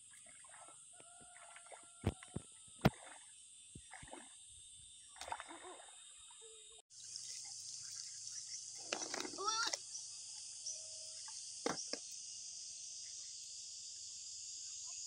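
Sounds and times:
water splashing and sloshing: 0.0 - 9.8
high-pitched insect drone: 0.5 - 15.0.

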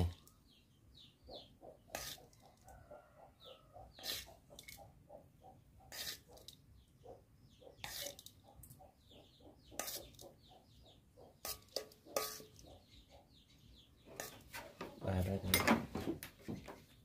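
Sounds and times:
chickens clucking: 1.2 - 6.4, 7.0 - 15.0
metal spoon clinking on bowls: 11.4 - 12.6.

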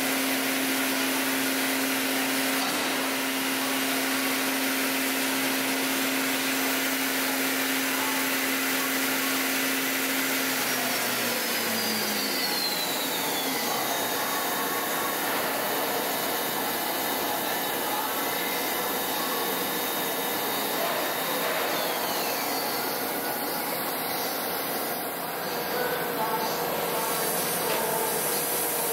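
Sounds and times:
milling machine whirring hiss: 0.0 - 28.9
falling high whine: 10.5 - 28.9.

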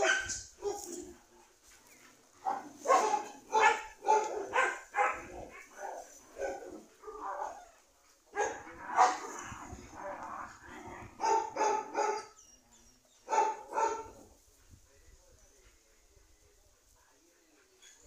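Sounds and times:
puppy barking: 0.0 - 1.0, 2.5 - 7.6, 8.4 - 9.4, 11.2 - 12.4, 13.3 - 14.1.

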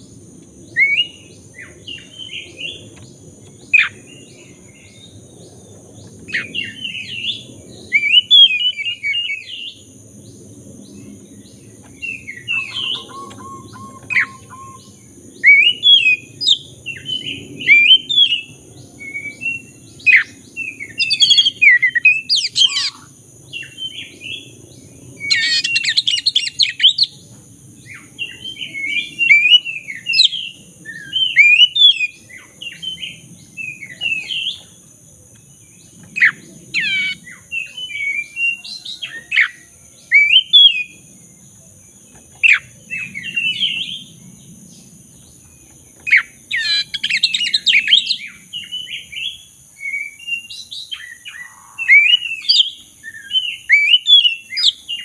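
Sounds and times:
bird singing: 0.0 - 55.0
harsh bird chattering: 12.5 - 14.8.

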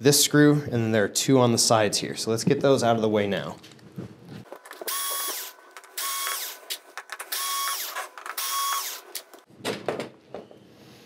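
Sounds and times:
electric screwdriver whining: 4.8 - 9.4.

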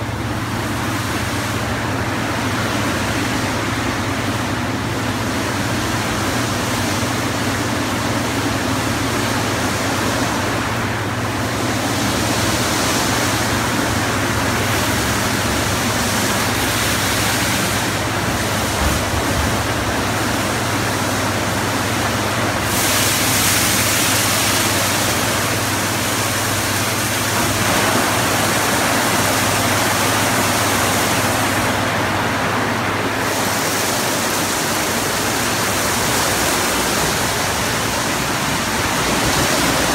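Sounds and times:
low motor hum: 0.0 - 22.8
water spray rushing: 0.1 - 39.9.

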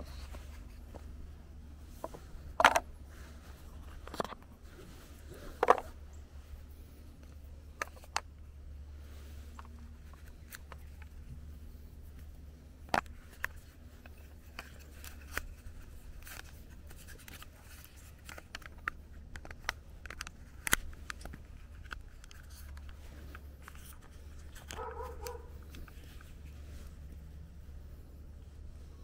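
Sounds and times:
dog barking: 24.8 - 25.6.

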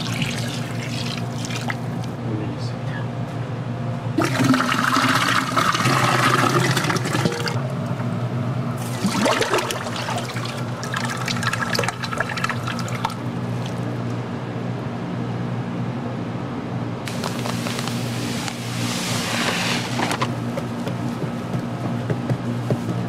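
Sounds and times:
water pouring and splashing: 0.0 - 1.9, 8.8 - 13.8
steady low hum: 0.0 - 23.0.

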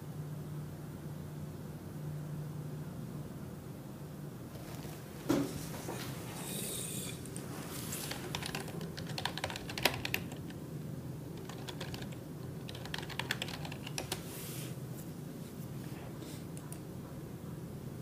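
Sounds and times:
faint low hum: 0.0 - 18.0
typing on keyboard: 8.1 - 10.6, 11.4 - 14.2.

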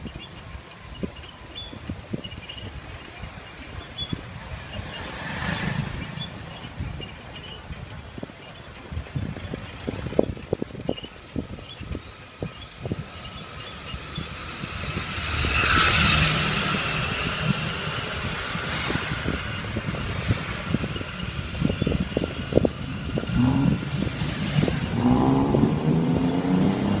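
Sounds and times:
street traffic: 0.0 - 27.0
wind rumbling on microphone: 0.0 - 27.0
motor vehicle passing: 4.4 - 7.6, 14.0 - 27.0
motor scooter engine approaching: 14.0 - 27.0.

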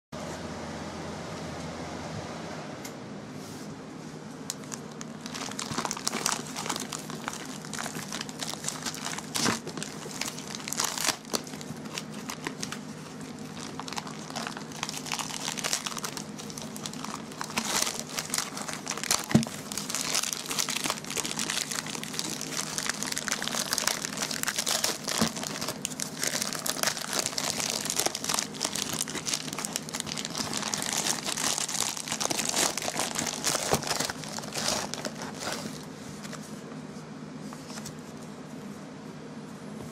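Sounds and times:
plastic mailer bag crinkling and tearing: 4.5 - 36.3
plastic wrap rustling: 4.5 - 36.6.

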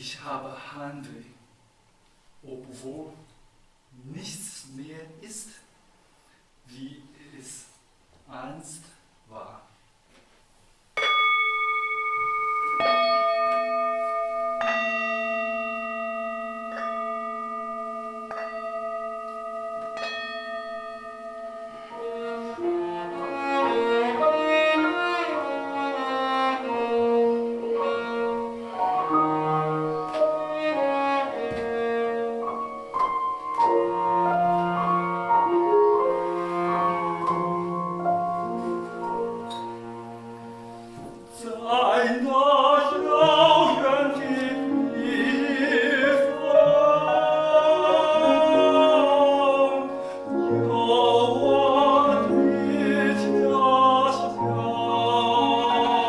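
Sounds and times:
grand piano: 11.0 - 56.0
cello playing: 16.5 - 56.0.

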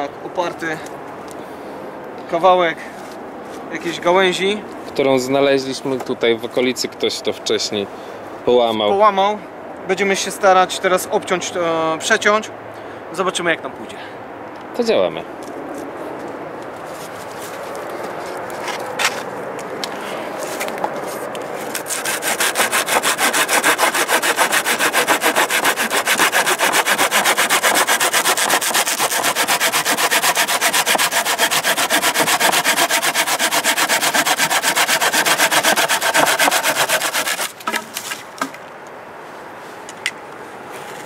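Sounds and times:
saw cutting through a branch: 20.4 - 38.3.

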